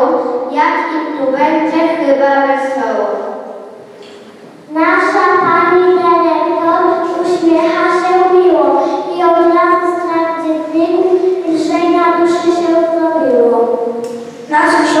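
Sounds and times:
young children singing: 0:04.7 - 0:15.0.

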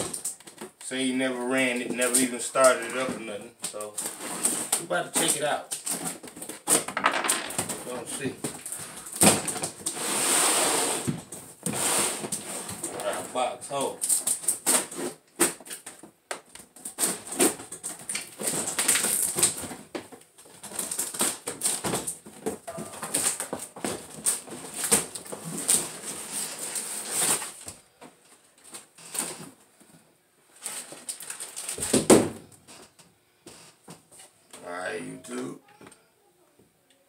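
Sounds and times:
plastic wrapping crinkling: 0:16.7 - 0:27.7, 0:30.5 - 0:32.0
cardboard packaging being opened: 0:16.8 - 0:19.8, 0:20.4 - 0:27.7, 0:30.6 - 0:32.2.

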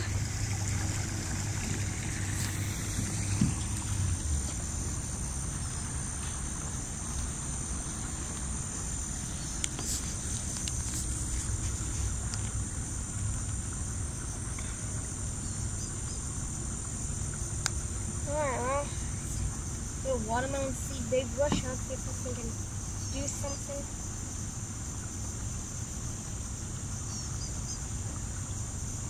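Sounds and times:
low rumble: 0:00.0 - 0:21.2
high-pitched insect chorus: 0:00.0 - 0:29.0.

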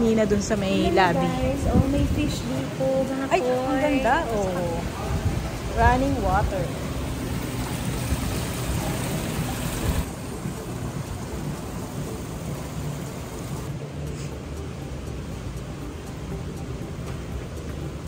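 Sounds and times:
fountain jets bubbling: 0:00.0 - 0:18.0
water rushing over stones: 0:04.2 - 0:13.7.

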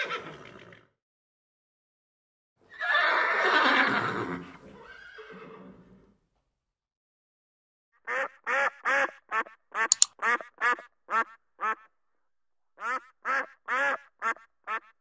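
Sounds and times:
horse whinnying: 0:00.0 - 0:00.9, 0:02.7 - 0:06.0
duck quacking: 0:08.1 - 0:11.9, 0:12.8 - 0:15.0.

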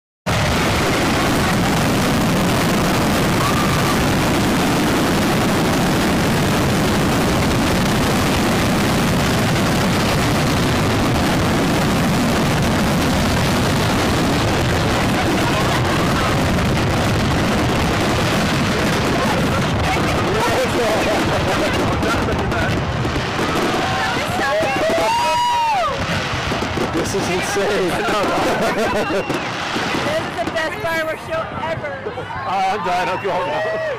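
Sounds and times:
fireworks barrage: 0:00.3 - 0:32.0.

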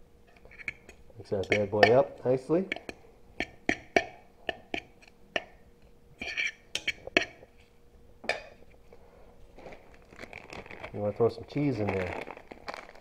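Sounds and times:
fork scraping a bowl: 0:00.3 - 0:02.0, 0:06.2 - 0:07.6.

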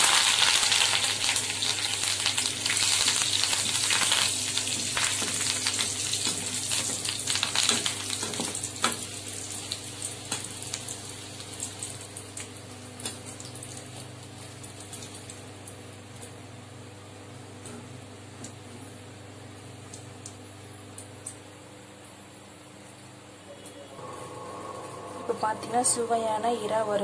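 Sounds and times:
leaves sizzling in hot oil: 0:00.0 - 0:15.7.

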